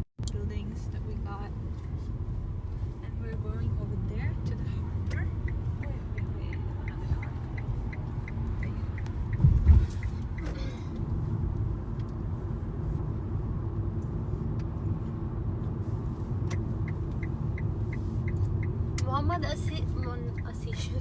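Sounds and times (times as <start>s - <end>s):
car engine and tyres rumbling: 0.0s - 21.0s
light even ticking: 3.2s - 12.2s, 16.4s - 21.0s.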